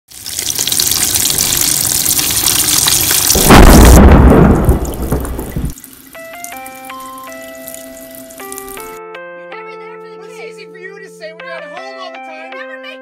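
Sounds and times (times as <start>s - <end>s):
deep rumbling boom: 3.3s - 5.8s
soft chime-like music: 6.2s - 13.0s.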